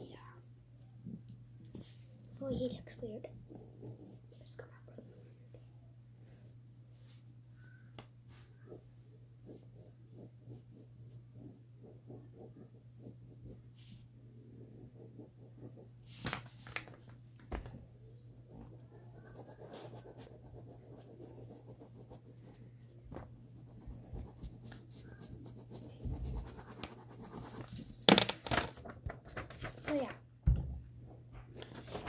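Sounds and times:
pen scratching on paper: 9.4s - 16.2s, 18.5s - 22.6s, 23.5s - 27.8s.

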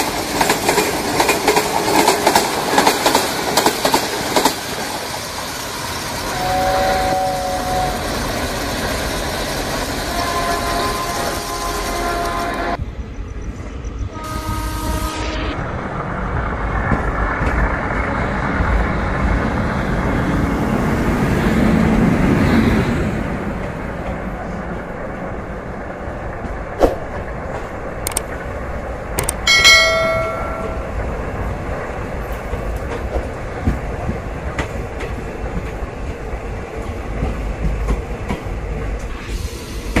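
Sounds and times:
short metallic ring: 29.3s - 31.0s.

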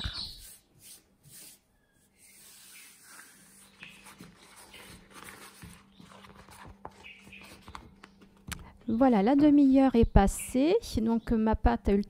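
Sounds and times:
cloth wrap rustling: 2.5s - 8.4s.

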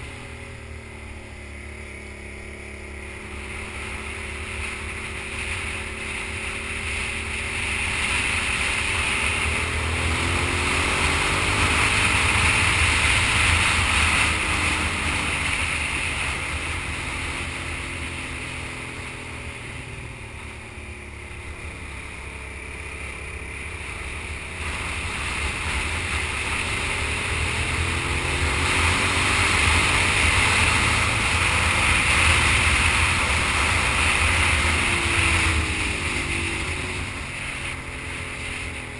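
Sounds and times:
motorcycle engine accelerating: 0.0s - 38.9s
wind rush on microphone: 23.8s - 38.9s.

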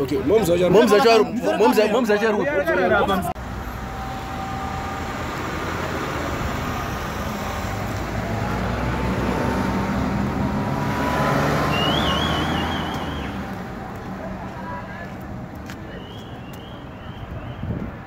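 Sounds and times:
vehicle passing: 2.8s - 18.0s
short warbling whistle: 11.7s - 13.4s.

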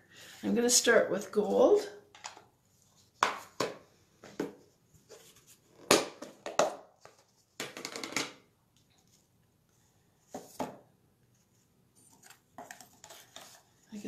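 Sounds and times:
knocks and clatters on desk: 3.2s - 4.6s, 5.8s - 8.4s.

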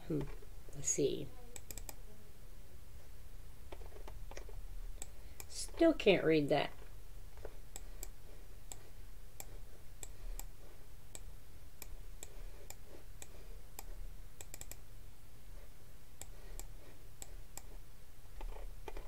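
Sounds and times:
faint low hum: 0.0s - 19.0s
computer mouse clicking: 1.6s - 2.0s, 3.7s - 5.8s, 6.7s - 10.5s, 11.1s - 14.8s, 16.2s - 17.8s, 18.4s - 19.0s.

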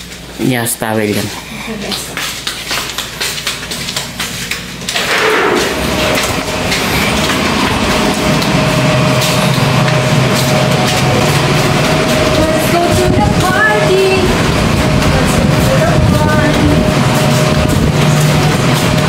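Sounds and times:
low outdoor hum: 0.0s - 19.0s
door opening: 4.8s - 13.2s.

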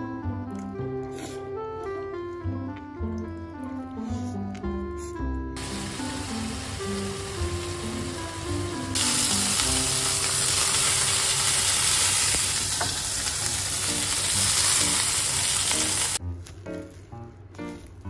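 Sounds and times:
meat sizzling in a pan: 5.6s - 16.2s.

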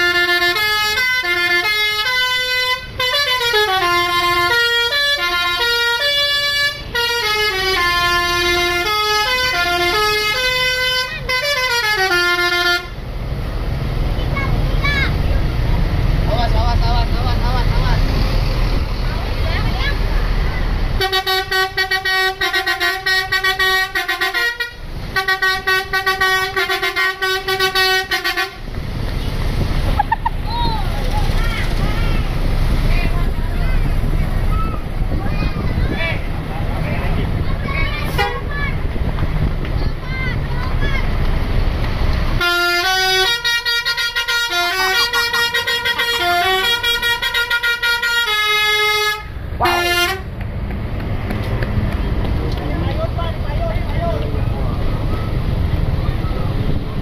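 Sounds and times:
multi-tone musical bus horn: 0.0s - 13.1s, 20.9s - 29.4s, 38.0s - 38.5s, 42.3s - 50.4s.

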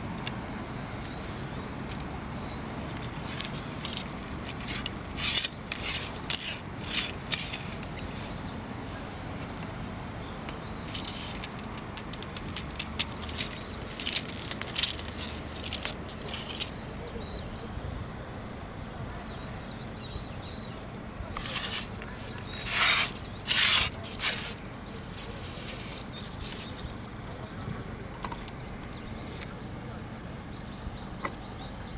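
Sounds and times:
fingers scraping fishing rod: 2.9s - 9.5s, 10.9s - 16.8s, 21.3s - 26.7s.

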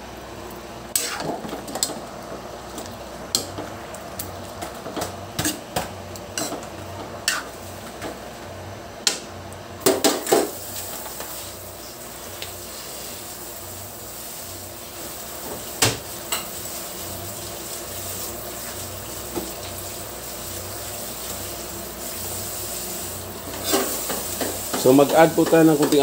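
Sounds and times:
metal spatula scraping a wok: 0.9s - 1.3s, 6.4s - 7.6s.

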